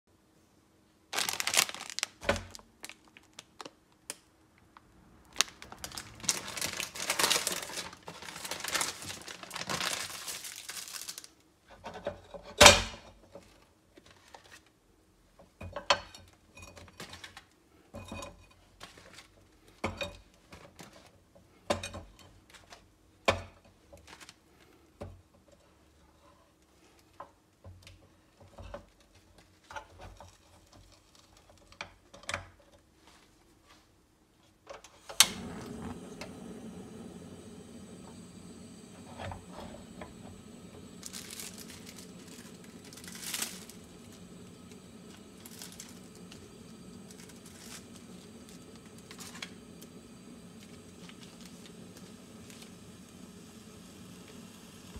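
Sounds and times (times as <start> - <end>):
plastic packaging crinkling and tearing: 1.1 - 4.3, 5.3 - 11.4, 24.0 - 24.4, 39.0 - 53.0.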